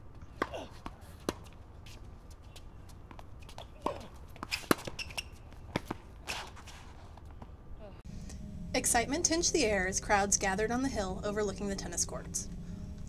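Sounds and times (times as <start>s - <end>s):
tennis ball bouncing on court: 0.2s - 1.6s, 2.6s - 6.0s
tennis ball hit by rackets: 0.3s - 1.5s, 3.1s - 6.6s.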